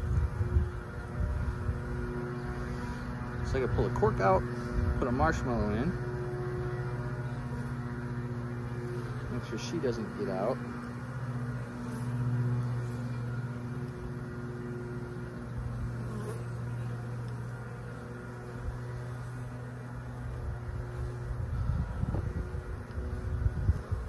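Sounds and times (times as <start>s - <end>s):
honeybees buzzing: 0.0s - 24.0s.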